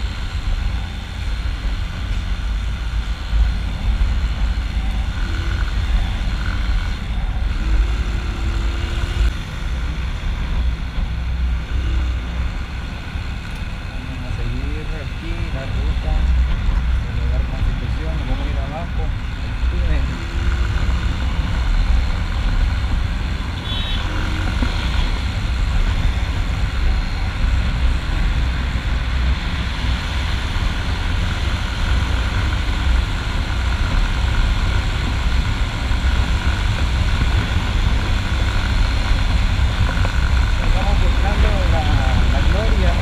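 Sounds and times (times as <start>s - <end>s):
motorcycle engine running: 0.0s - 43.0s.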